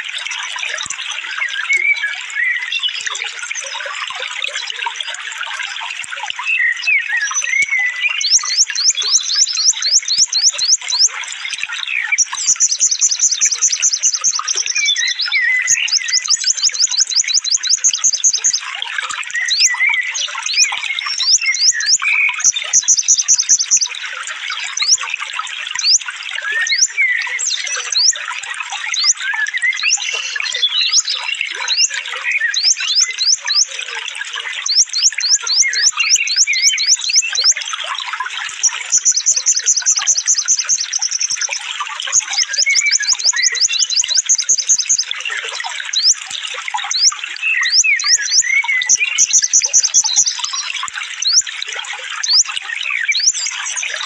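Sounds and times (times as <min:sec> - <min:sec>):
running water: 0:00.0 - 0:54.0
songbird trilling and chirping: 0:06.6 - 0:11.2, 0:11.9 - 0:18.6, 0:19.3 - 0:24.0, 0:24.6 - 0:25.1, 0:25.8 - 0:28.2, 0:28.8 - 0:33.8, 0:34.6 - 0:37.6, 0:38.6 - 0:45.1, 0:45.9 - 0:51.5, 0:52.2 - 0:54.0.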